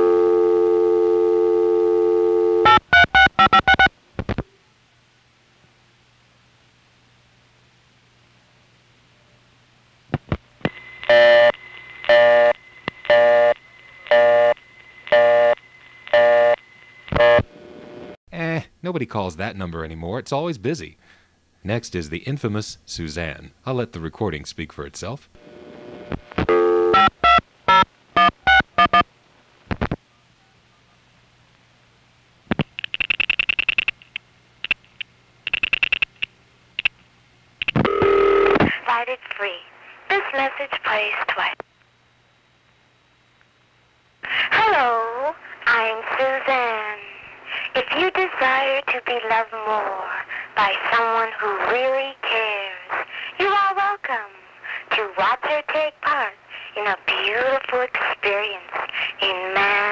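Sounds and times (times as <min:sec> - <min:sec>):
telephone busy signal: 0:00.0 - 0:03.9, 0:11.0 - 0:17.5, 0:26.4 - 0:29.0, 0:37.6 - 0:38.6
faint low hum: 0:00.0 - 0:59.9
faint line hum: 0:10.6 - 0:18.2.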